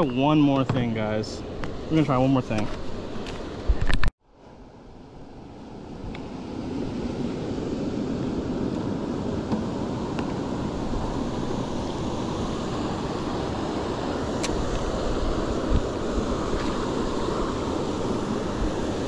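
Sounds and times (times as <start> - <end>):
lake water around boat: 0.0 - 19.0
wind buffeting microphone: 5.7 - 19.0.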